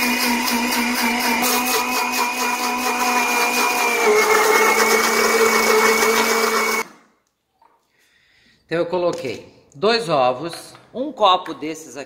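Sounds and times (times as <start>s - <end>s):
electric blender running: 0.0s - 7.0s.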